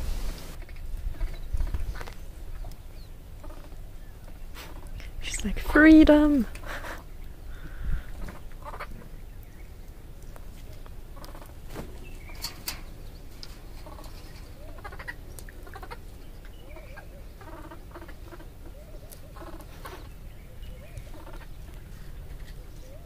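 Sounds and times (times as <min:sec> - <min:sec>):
clicks of movement on branches: 0:10.2 - 0:16.5.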